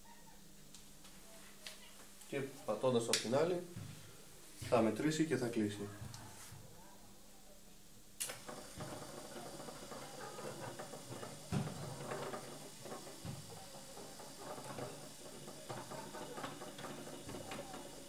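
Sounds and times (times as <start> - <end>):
gate motor rattling: 8.2 - 18.0.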